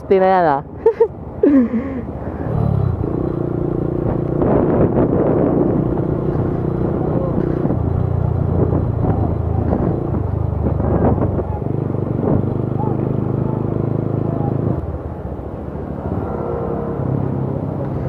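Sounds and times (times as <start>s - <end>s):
road noise: 0.0s - 18.0s
motorcycle engine cruising: 2.1s - 18.0s
wind rushing: 2.2s - 12.7s.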